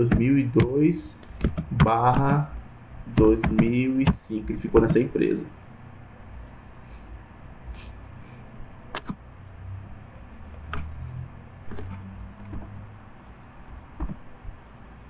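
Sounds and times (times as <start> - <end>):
low steady hum: 0.0 - 15.0
mouse and keyboard clicks: 0.1 - 2.4, 3.2 - 4.2, 8.9 - 9.2, 10.6 - 12.7.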